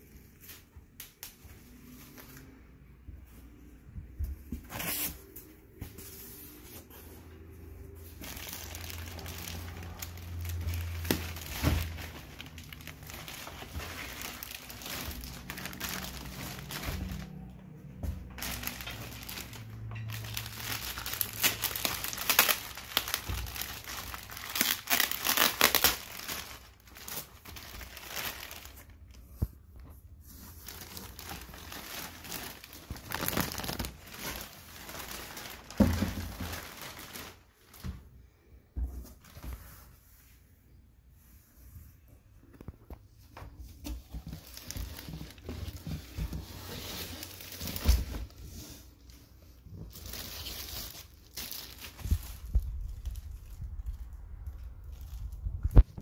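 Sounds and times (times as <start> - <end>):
plastic and foam crinkling: 3.2 - 38.2, 38.9 - 40.4, 41.2 - 56.0.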